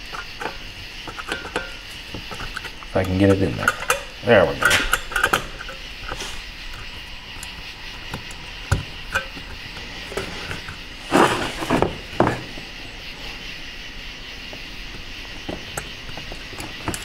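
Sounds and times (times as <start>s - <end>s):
metal clatter: 0.0s - 6.9s, 15.4s - 17.0s
small metal clicks and taps: 0.1s - 5.8s.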